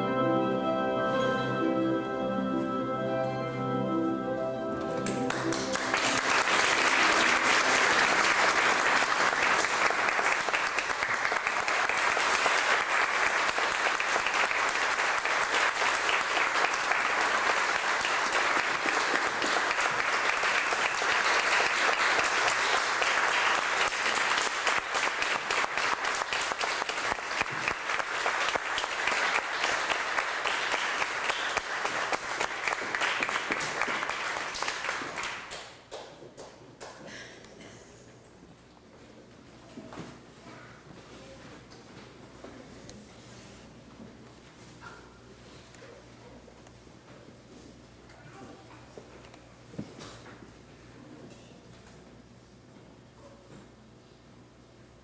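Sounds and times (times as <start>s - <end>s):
audience applauding: 4.8s - 37.0s.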